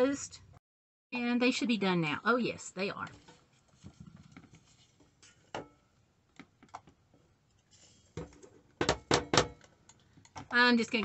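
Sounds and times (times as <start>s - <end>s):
griddle taps and knock: 8.2s - 9.7s.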